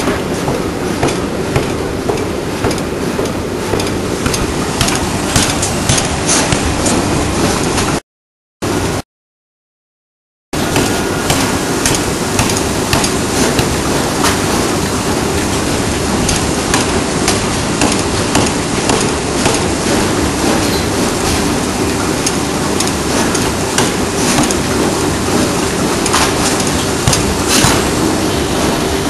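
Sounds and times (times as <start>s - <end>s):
rolling mill machine noise: 0.0s - 8.0s, 10.6s - 29.0s
sharp clicks and knocks: 0.0s - 8.0s, 10.6s - 14.6s, 16.2s - 24.8s, 25.4s - 28.0s.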